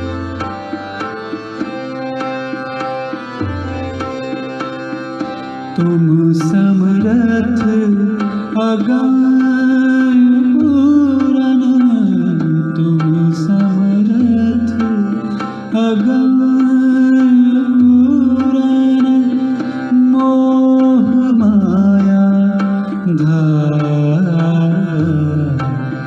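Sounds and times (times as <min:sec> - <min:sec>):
tabla: 0:00.0 - 0:26.0
man singing: 0:05.7 - 0:26.0.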